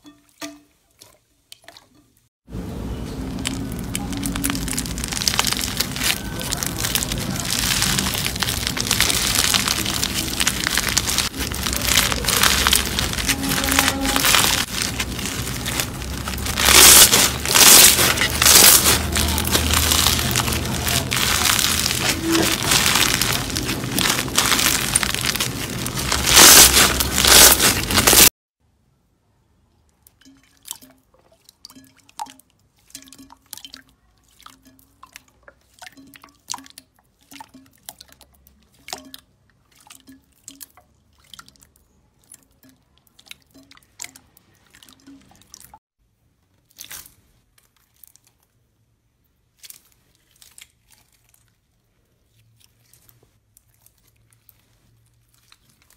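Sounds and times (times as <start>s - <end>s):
wet slime squelches and drips: 0.0s - 2.3s, 3.4s - 28.3s, 29.8s - 45.8s, 46.4s - 55.9s
slime crackling and popping: 3.4s - 28.3s.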